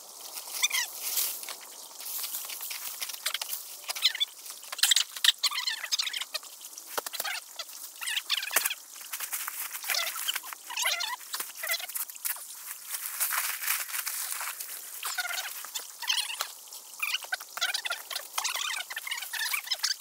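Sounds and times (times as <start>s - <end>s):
footsteps crunching through dry leaves: 8.6s - 15.9s.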